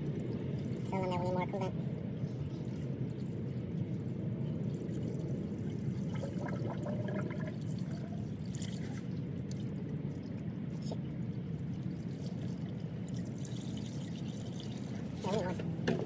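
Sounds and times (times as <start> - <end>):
liquid pouring from plastic jug: 4.5 - 11.1, 11.7 - 16.0.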